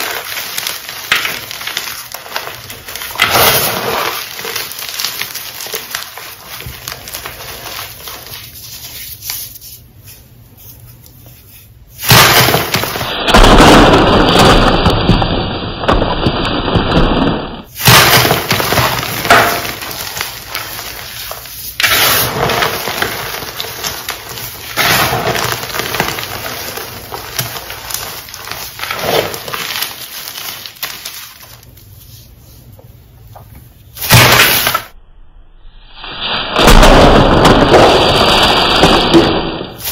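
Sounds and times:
chalk crumbling between hands: 0.0s - 13.2s, 17.9s - 33.0s.

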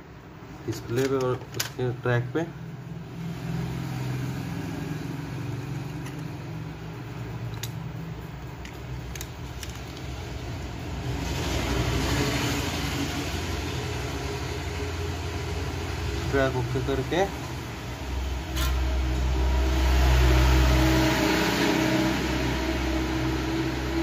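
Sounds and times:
low mechanical hum: 0.0s - 24.0s
small clicks of handling: 0.8s - 1.8s, 7.5s - 7.8s, 8.6s - 10.1s.

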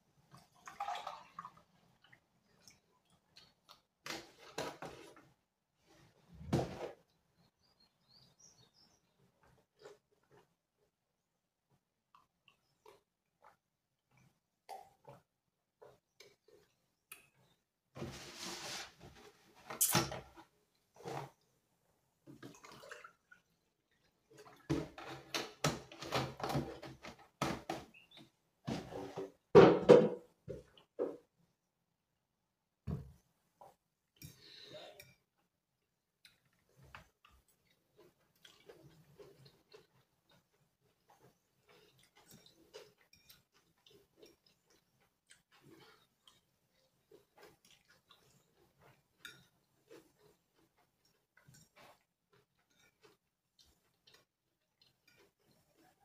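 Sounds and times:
water pouring into mug: 0.6s - 1.5s
plastic jug knocking: 29.6s - 31.2s.

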